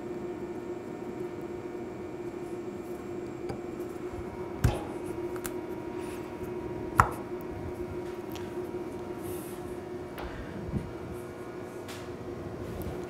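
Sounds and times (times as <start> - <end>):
steady shop hum: 0.0 - 13.0.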